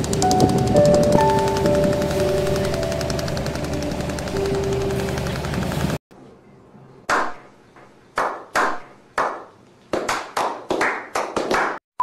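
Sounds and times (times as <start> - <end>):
group hand clapping: 8.2 - 11.8.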